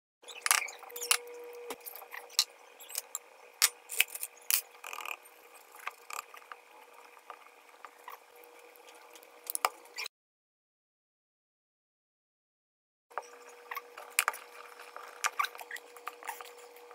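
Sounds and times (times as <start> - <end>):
faint steady hum: 0.2 - 10.0.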